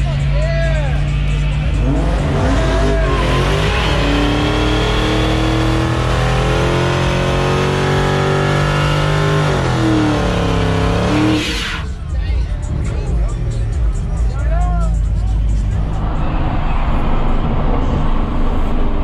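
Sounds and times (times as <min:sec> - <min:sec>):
car engine at high revs: 0:01.0 - 0:11.9.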